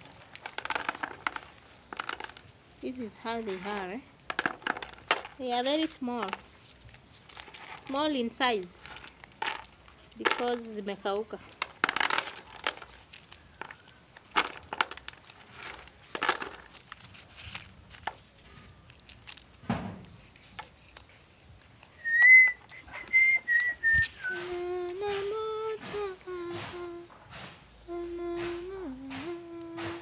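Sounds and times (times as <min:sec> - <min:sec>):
dry bean pods crackling: 0:00.0 - 0:27.1
person whistling: 0:22.0 - 0:25.7
person humming a tune: 0:22.0 - 0:27.1, 0:27.8 - 0:30.0.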